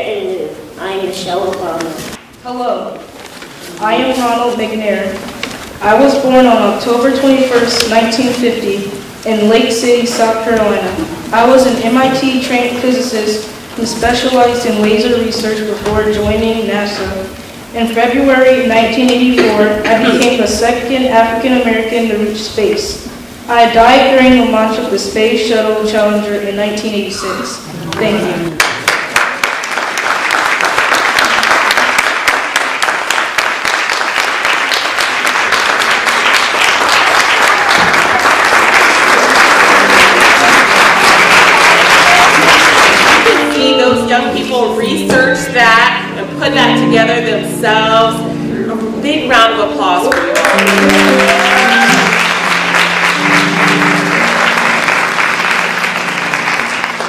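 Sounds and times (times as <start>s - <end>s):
congregation applauding: 28.0s - 43.8s, 50.0s - 57.0s
sustained low musical notes: 43.3s - 57.0s.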